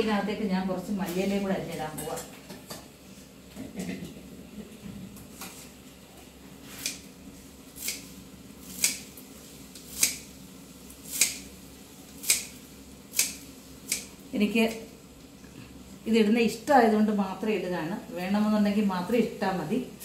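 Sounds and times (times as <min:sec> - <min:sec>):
scissors snipping leaves: 0:07.8 - 0:08.1, 0:08.7 - 0:09.1, 0:09.8 - 0:10.3, 0:11.1 - 0:11.5, 0:12.2 - 0:14.1.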